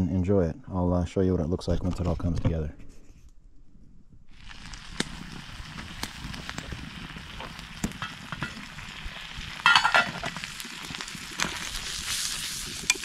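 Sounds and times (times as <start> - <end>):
campfire wood crackling: 4.3 - 13.0
food sizzling in a pan: 4.3 - 13.0
metal pot lid clattering: 9.6 - 10.4.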